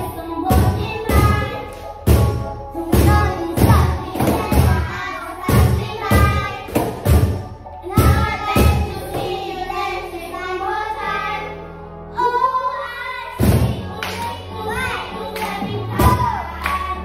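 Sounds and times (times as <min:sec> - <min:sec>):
voices singing pop melody: 0:00.0 - 0:17.0.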